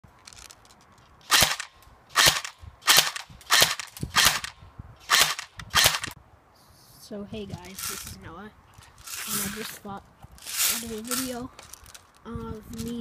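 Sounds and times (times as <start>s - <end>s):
airsoft rifle shots: 1.3s - 6.2s.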